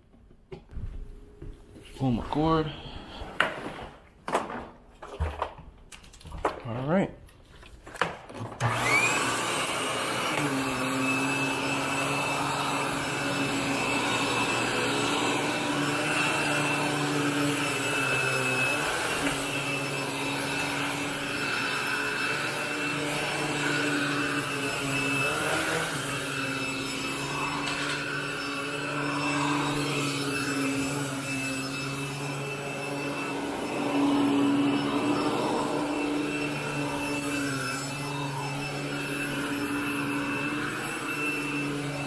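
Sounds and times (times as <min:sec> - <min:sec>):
vacuum cleaner motor whine: 0:08.4 - 0:42.0.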